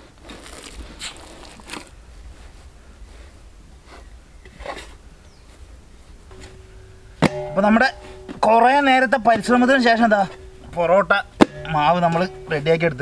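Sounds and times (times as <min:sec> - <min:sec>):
hands kneading dough: 0:00.0 - 0:02.0.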